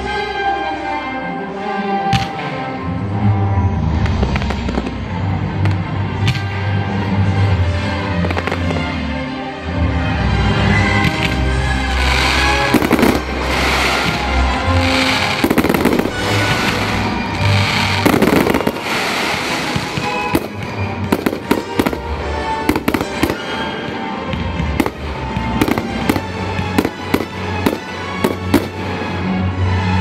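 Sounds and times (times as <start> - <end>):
music: 0.0 - 30.0
firework bursts: 11.2 - 24.1, 24.8 - 29.3
firework cracks and pops: 12.0 - 24.0, 24.6 - 29.0.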